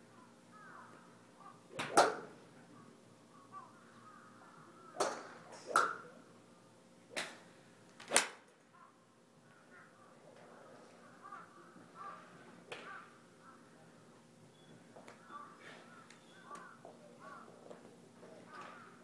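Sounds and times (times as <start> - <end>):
golf clubs striking balls: 1.7 - 2.3, 5.0 - 6.1, 7.1 - 7.4.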